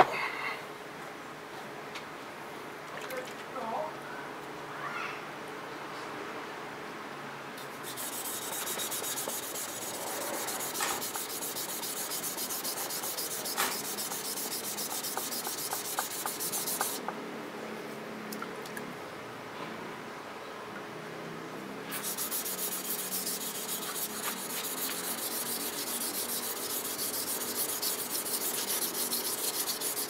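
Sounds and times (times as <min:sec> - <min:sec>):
knife scraping on whetstone: 0:07.6 - 0:17.0, 0:21.9 - 0:30.0.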